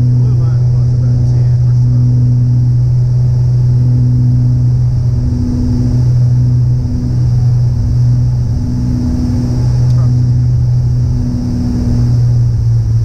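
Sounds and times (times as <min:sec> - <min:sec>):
light aircraft engine drone: 0:00.0 - 0:13.0
faint tone: 0:09.9 - 0:10.4.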